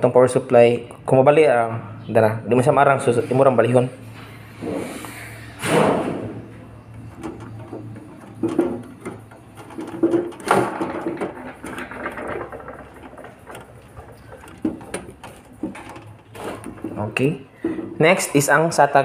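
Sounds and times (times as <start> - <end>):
cables knocking inside metal case: 6.9 - 18.0.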